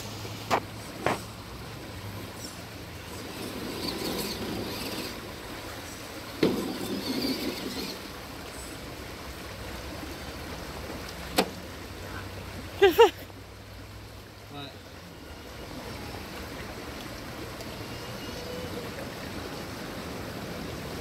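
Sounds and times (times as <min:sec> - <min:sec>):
electric motor and gears whirring: 0:03.0 - 0:05.4, 0:06.4 - 0:08.2.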